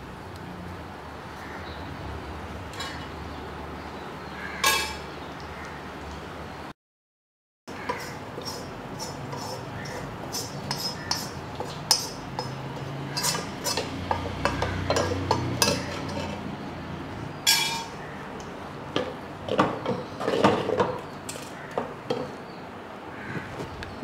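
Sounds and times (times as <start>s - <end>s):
pan clinking on pots: 4.6s - 5.1s, 10.7s - 16.4s, 17.5s - 18.0s
spatula stirring in clay pot: 7.7s - 16.5s
wooden spatula scraping metal pan: 7.7s - 16.5s.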